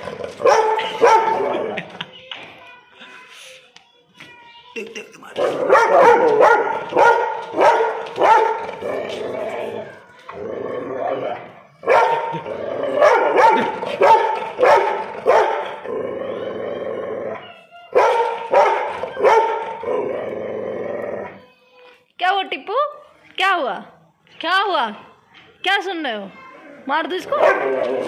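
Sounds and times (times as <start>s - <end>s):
dog barking: 0.4s - 1.5s, 5.4s - 8.8s, 11.8s - 12.4s, 13.0s - 15.8s, 17.9s - 19.8s, 27.3s - 28.0s.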